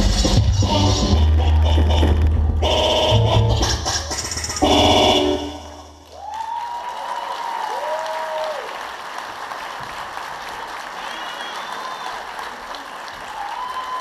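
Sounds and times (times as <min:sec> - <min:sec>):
music: 0:00.0 - 0:06.0
audience applauding and cheering: 0:05.6 - 0:14.0
whoops: 0:06.1 - 0:08.8, 0:11.0 - 0:14.0.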